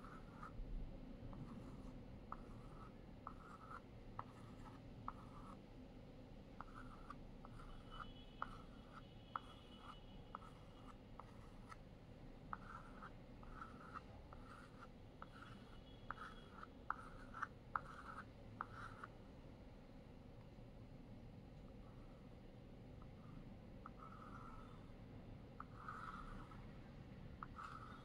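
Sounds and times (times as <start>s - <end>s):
chalk scratching on blackboard: 0.0s - 0.6s, 1.3s - 5.6s, 6.6s - 11.8s, 12.5s - 19.2s, 23.0s - 25.0s, 25.6s - 26.8s, 27.4s - 28.0s.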